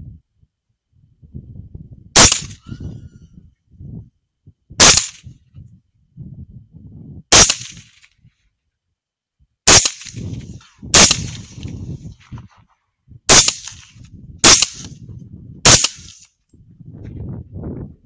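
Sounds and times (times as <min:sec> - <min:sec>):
rifle shots: 0:02.2 - 0:02.6, 0:04.8 - 0:05.3, 0:07.3 - 0:08.1, 0:09.7 - 0:11.8, 0:13.3 - 0:15.0, 0:15.6 - 0:16.3.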